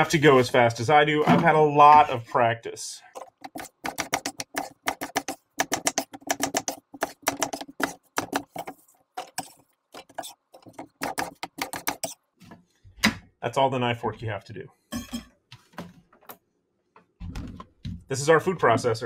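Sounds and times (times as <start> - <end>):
knife chopping on wooden board: 3.4 - 8.7.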